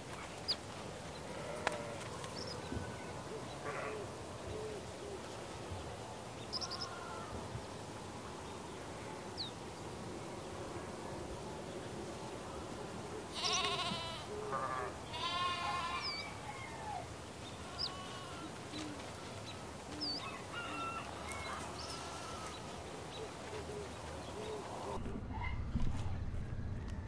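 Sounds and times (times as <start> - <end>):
farmyard background: 0.0 - 27.0
livestock bleating: 1.3 - 2.0, 6.6 - 7.3, 13.3 - 16.4, 17.5 - 19.4, 21.2 - 22.8.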